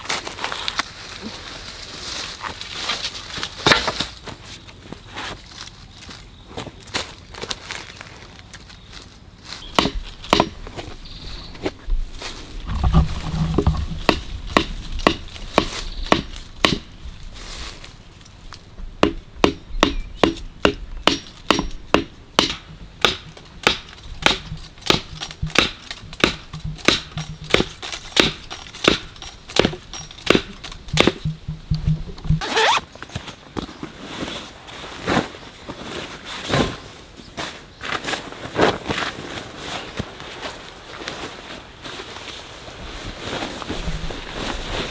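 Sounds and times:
sharp knocks on wood: 9.8s - 10.6s, 12.8s - 16.9s, 19.0s - 32.4s.

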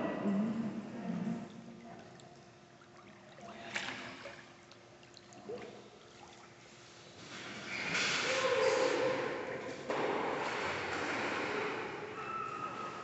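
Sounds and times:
pool water lapping: 0.0s - 9.8s.

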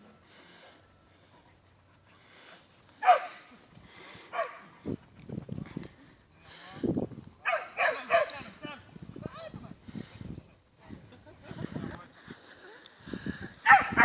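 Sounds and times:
dog barking: 3.0s - 3.4s, 4.3s - 4.6s, 7.4s - 8.4s, 13.6s - 14.0s.

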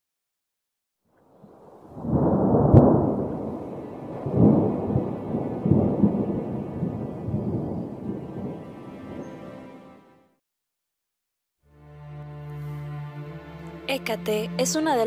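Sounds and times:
rolling thunder: 1.3s - 9.4s.

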